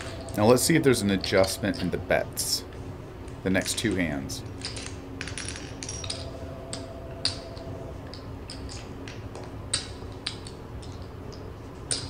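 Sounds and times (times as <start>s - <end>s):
low steady hum: 0.0s - 12.0s
casino chips clicking: 4.6s - 11.1s.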